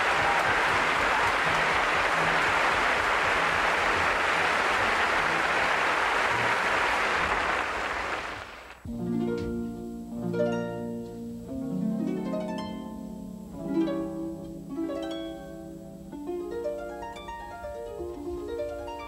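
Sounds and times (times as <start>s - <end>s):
pizzicato strings: 0.0s - 6.6s
harp arpeggios: 8.9s - 19.0s.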